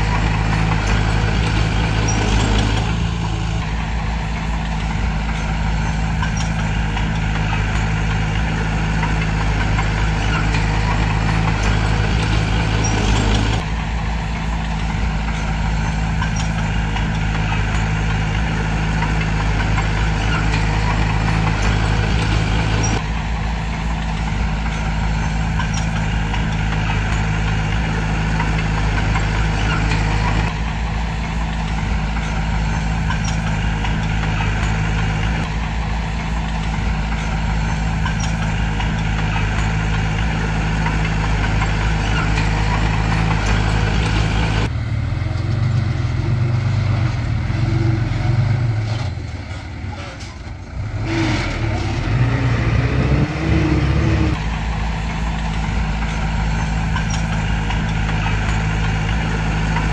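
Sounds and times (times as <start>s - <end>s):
heavy machinery diesel engine running: 0.0s - 59.9s.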